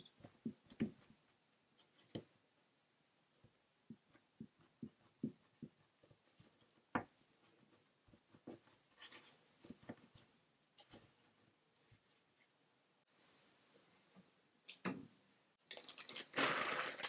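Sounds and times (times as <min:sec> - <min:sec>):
hands tapping and rubbing dough: 0:00.0 - 0:12.1.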